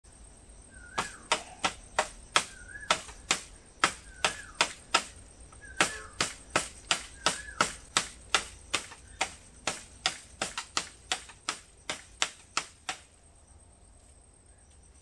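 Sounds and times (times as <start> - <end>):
blade chopping bamboo: 1.0 - 5.2, 5.8 - 13.1.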